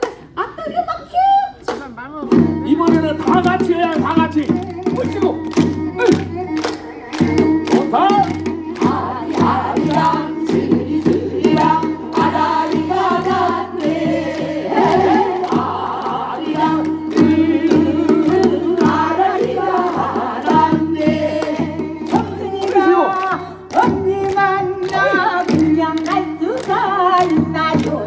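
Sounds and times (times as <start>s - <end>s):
people singing together: 8.6s - 28.0s.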